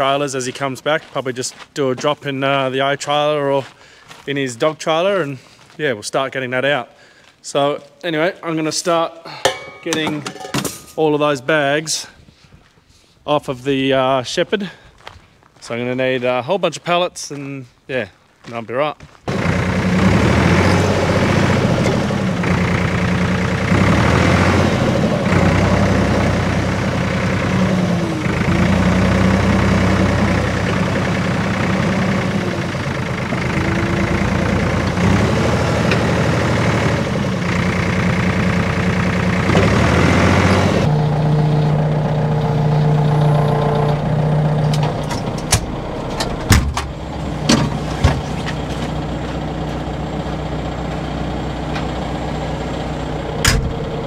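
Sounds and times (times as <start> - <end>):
forklift engine running: 19.3 - 54.0.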